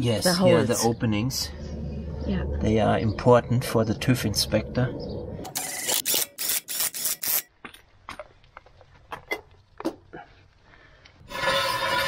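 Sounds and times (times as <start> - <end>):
steady whining noise: 0.0 - 6.0.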